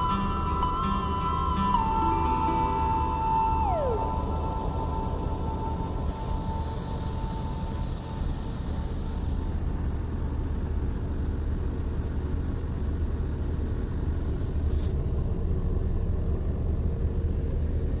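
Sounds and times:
diesel engine idling: 0:00.0 - 0:18.0
brief air hiss: 0:14.4 - 0:15.1.

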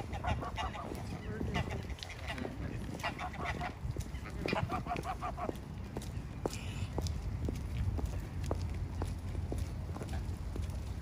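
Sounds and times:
geese honking: 0:00.0 - 0:05.6
steady low rumble: 0:00.0 - 0:11.0.

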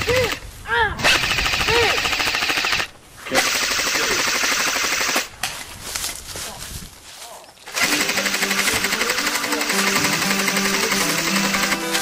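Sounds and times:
rapid automatic gunfire: 0:01.0 - 0:05.3, 0:07.7 - 0:12.0.

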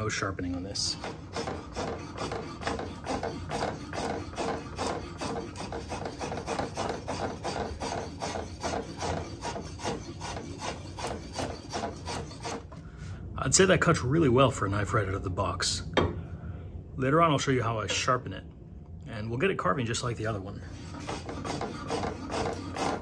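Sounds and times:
drawknife scraping wood: 0:00.4 - 0:12.8, 0:20.7 - 0:23.0.

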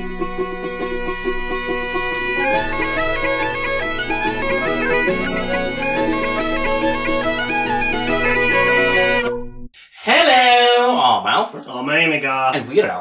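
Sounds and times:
bagpipe music: 0:00.0 - 0:09.7.

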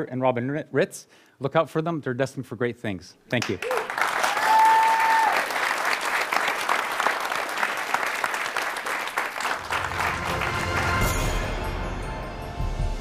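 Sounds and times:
audience applauding: 0:03.4 - 0:11.3
music: 0:09.5 - 0:13.0.

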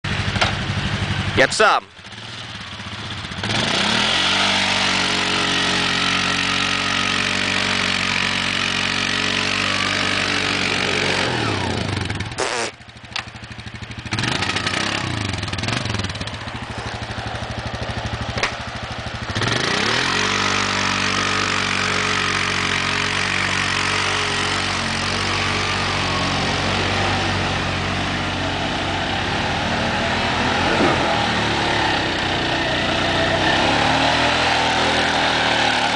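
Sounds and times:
atv engine revving: 0:00.1 - 0:35.9.

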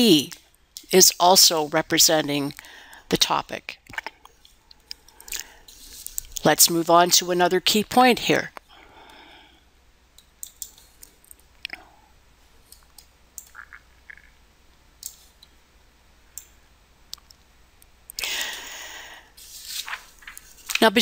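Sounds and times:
computer mouse clicks: 0:10.2 - 0:11.8, 0:15.0 - 0:15.3.

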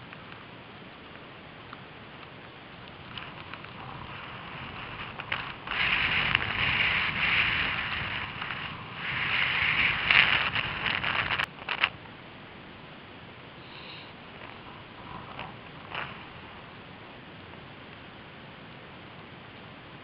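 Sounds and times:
skis hissing over snow: 0:03.0 - 0:11.8, 0:13.6 - 0:17.0.

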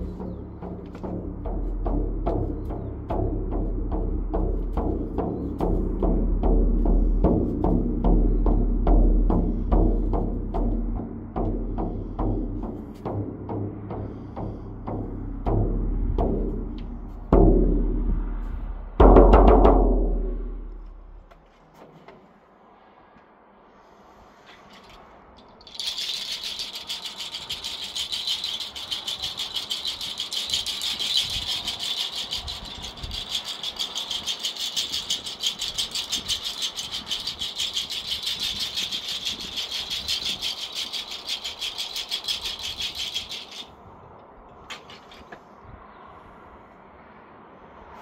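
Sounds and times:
hand rattle shaking: 0:00.0 - 0:00.2, 0:24.8 - 0:43.7.

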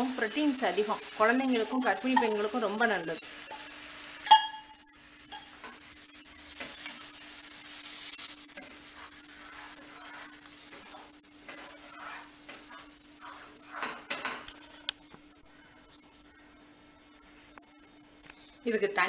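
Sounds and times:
batter sizzling: 0:00.0 - 0:18.6
spatula scraping a pan: 0:00.9 - 0:14.9.

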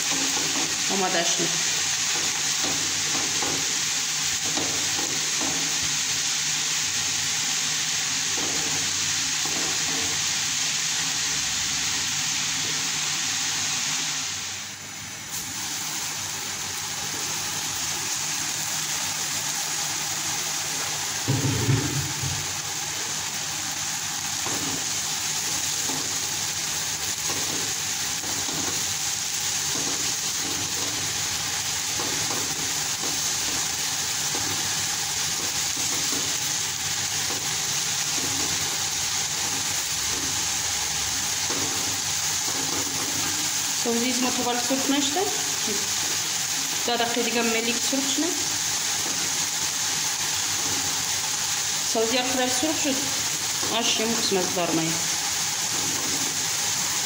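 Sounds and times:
greens sizzling in oil: 0:00.0 - 0:57.0
short low knock: 0:21.3 - 0:22.4.

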